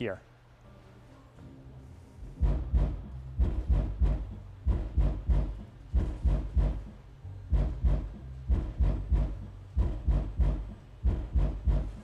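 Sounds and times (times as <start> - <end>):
bass-heavy beat: 2.4 - 12.0.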